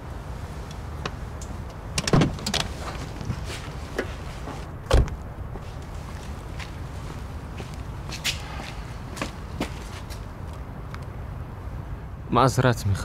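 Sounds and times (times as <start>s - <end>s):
steady low rumble: 0.0s - 12.3s
car door shutting thud: 2.0s - 2.5s, 4.8s - 5.2s
car door opening clack: 2.0s - 2.7s, 4.9s - 5.2s.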